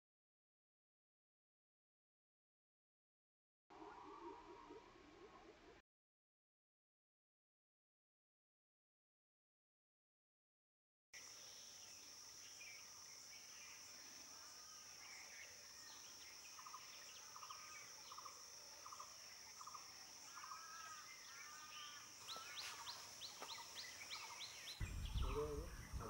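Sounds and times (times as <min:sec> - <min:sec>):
high-pitched insect drone: 0:11.2 - 0:26.0
bird calls: 0:12.5 - 0:26.0.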